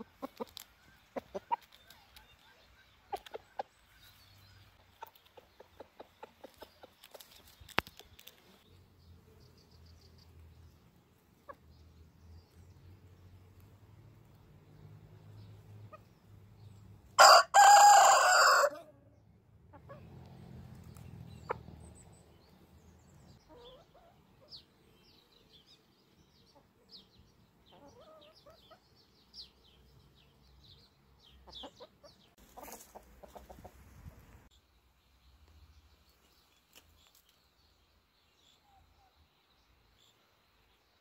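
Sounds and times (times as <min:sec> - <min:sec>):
hens clucking softly: 0:00.0 - 0:04.1, 0:04.8 - 0:07.2, 0:31.4 - 0:34.3
rooster crowing: 0:17.2 - 0:18.9.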